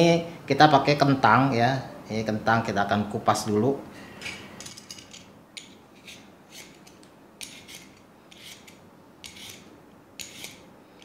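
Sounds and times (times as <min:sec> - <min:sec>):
peeler scraping potato skin: 0:06.0 - 0:10.6.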